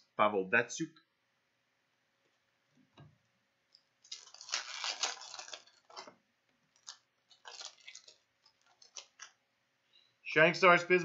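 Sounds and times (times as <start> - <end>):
foil wrapper crinkling: 4.0 - 9.4.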